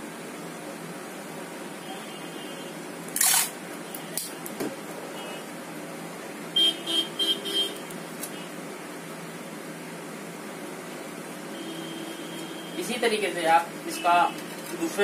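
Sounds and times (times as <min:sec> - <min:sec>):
tape ripping off roll: 0:03.1 - 0:03.6.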